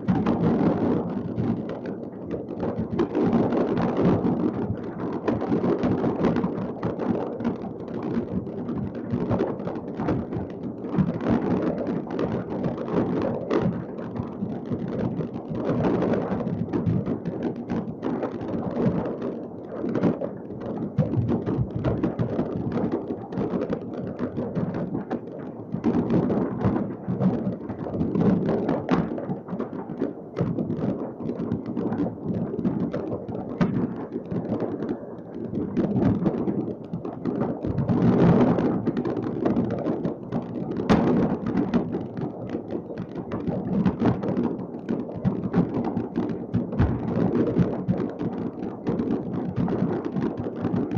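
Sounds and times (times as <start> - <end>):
fireworks bangs and crackles: 0.0 - 50.9
sharp firework bangs: 40.8 - 42.2, 46.2 - 47.7.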